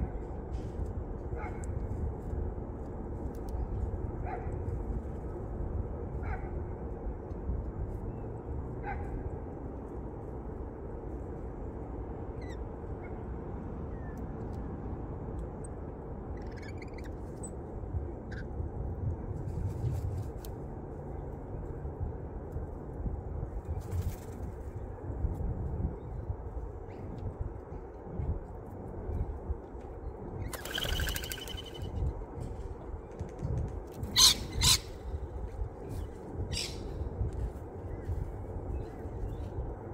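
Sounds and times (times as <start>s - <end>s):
low outdoor rumble: 0.0s - 39.9s
birds chirping: 30.4s - 32.0s, 36.5s - 36.9s
lorikeet screeches: 34.1s - 34.9s, 36.5s - 36.8s.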